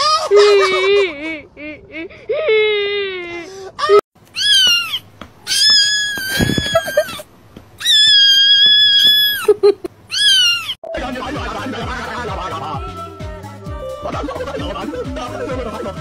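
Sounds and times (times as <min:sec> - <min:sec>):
cat meowing: 0:04.3 - 0:07.2, 0:07.8 - 0:09.5, 0:10.1 - 0:10.8
music: 0:10.8 - 0:16.0.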